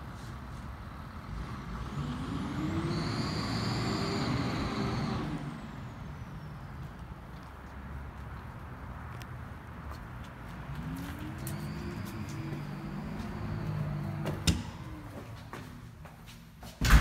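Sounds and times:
vehicle driving past: 0.1s - 7.3s, 10.4s - 16.2s.

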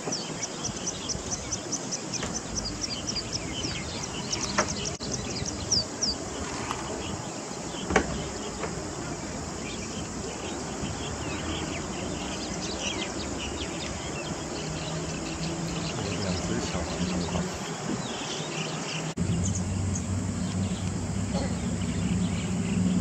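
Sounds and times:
low hum: 19.2s - 23.0s.

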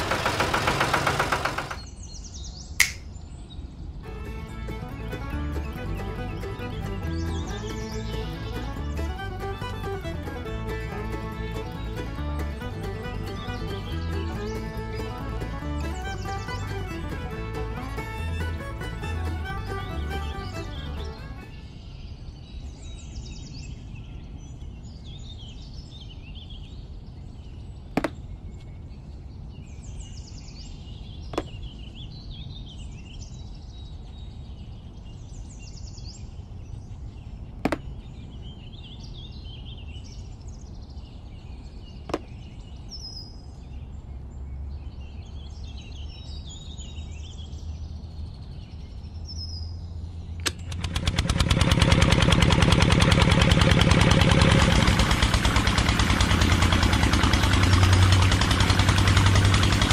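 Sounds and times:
sharp clicks: 0.0s - 1.9s, 2.8s - 3.1s, 50.4s - 59.9s
small motor rattling: 0.0s - 1.9s, 4.3s - 21.5s, 50.4s - 59.9s
birds chirping: 0.0s - 59.9s.

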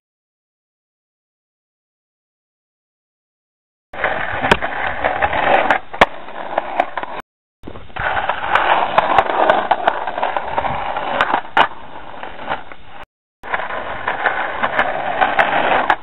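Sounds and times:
skateboard clacks: 4.0s - 16.0s
skateboard rolling on concrete: 4.0s - 16.0s.

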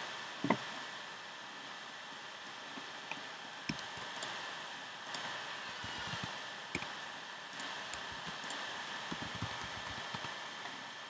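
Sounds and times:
steady hiss: 0.0s - 11.0s
keyboard and mouse clicks: 3.7s - 4.3s, 5.1s - 6.9s, 7.5s - 10.4s.

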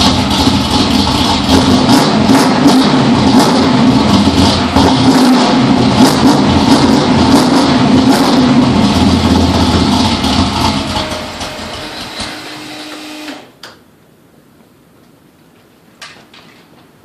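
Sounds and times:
engine running loudly: 0.0s - 13.4s.

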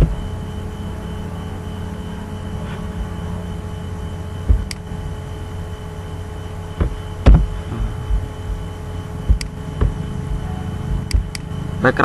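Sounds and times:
electrical hum: 0.0s - 12.0s
faint high tone: 10.4s - 10.9s.

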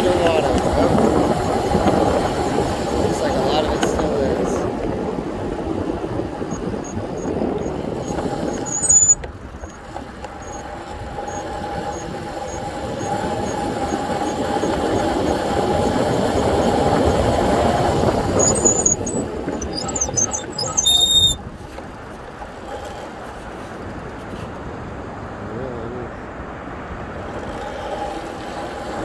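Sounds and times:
riding noise rumble: 0.0s - 29.0s
short high squeals: 8.0s - 9.8s, 18.3s - 21.4s.

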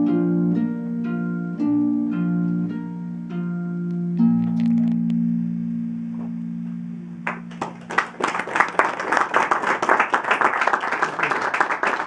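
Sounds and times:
audience applause: 7.3s - 12.0s.

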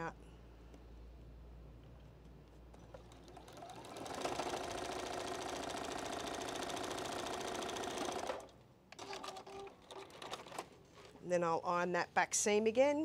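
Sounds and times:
sewing machine stitching: 2.7s - 10.7s.

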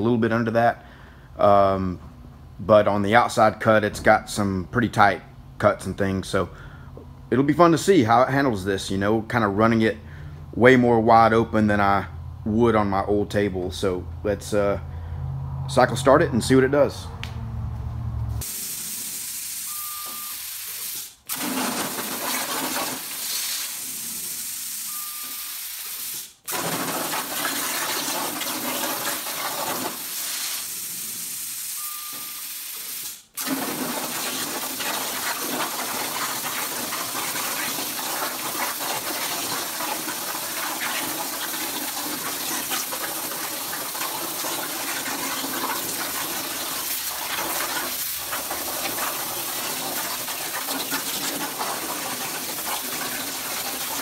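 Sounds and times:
plasma torch cutting steel: 18.4s - 54.0s
short beep: 19.6s - 20.5s, 24.9s - 25.6s, 31.8s - 32.6s.

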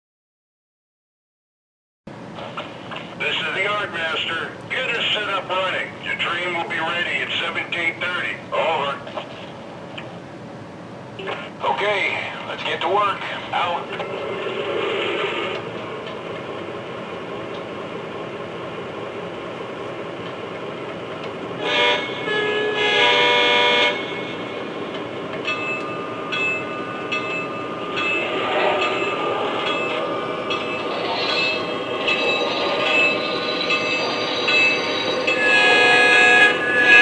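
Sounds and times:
train horn: 21.6s - 24.5s, 35.3s - 37.0s.

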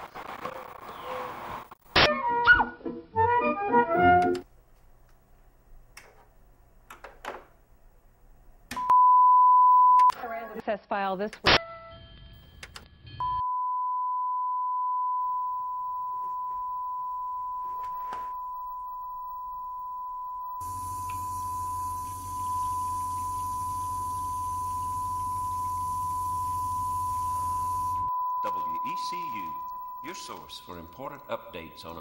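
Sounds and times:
high-pitched sine test tone: 13.2s - 32.0s
short electronic beeps: 13.2s - 32.0s
low hum and hiss: 20.6s - 32.0s.

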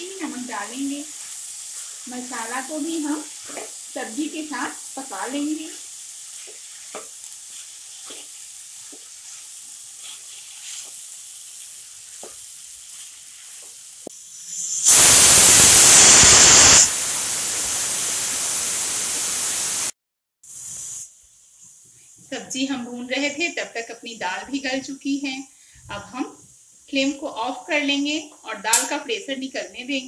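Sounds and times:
pressure cooker steam hiss: 0.0s - 30.0s
vegetables sizzling in a pan: 0.0s - 30.0s
spatula scraping and tapping: 6.4s - 9.4s.

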